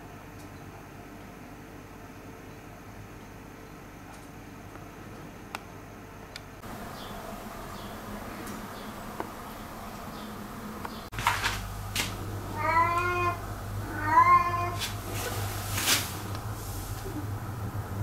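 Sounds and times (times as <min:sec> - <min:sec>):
cat meowing: 0:12.5 - 0:14.8
short hissy noises: 0:14.7 - 0:17.1.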